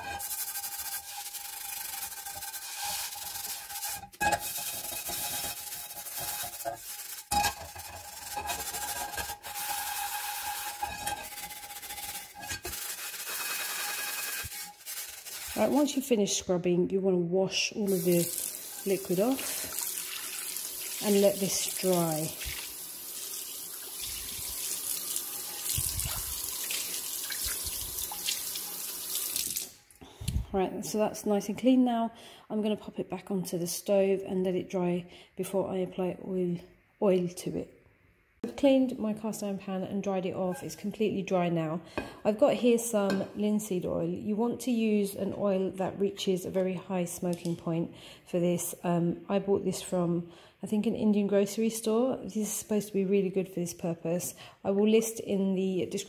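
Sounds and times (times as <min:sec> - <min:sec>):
steel wool scrubbing pan: 0:00.0 - 0:16.3, 0:17.8 - 0:22.7, 0:24.0 - 0:28.8
tap water splashing on a pan: 0:21.7 - 0:29.8.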